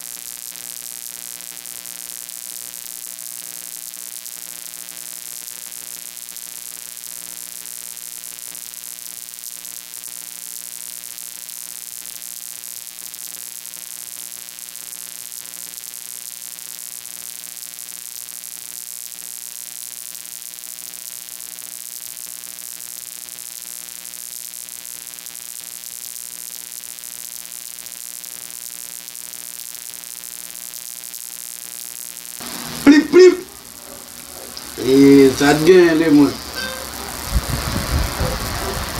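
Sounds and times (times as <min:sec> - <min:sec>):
electrical hum: 0:32.4 - 0:38.9
loud even hiss: 0:32.4 - 0:38.9.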